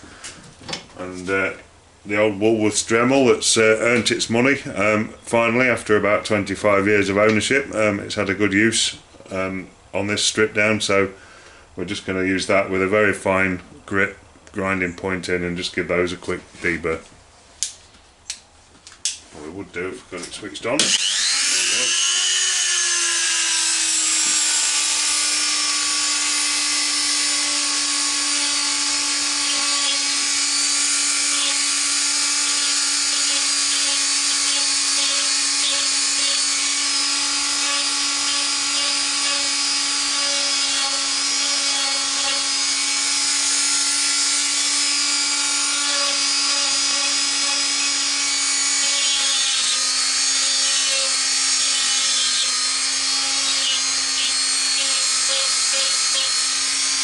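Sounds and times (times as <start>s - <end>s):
rotary tool grinding steel: 20.8s - 57.0s.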